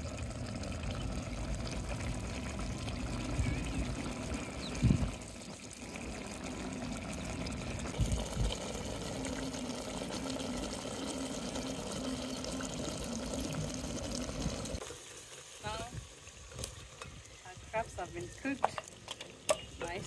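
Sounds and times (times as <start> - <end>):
stew bubbling in a pot: 0.0 - 20.0.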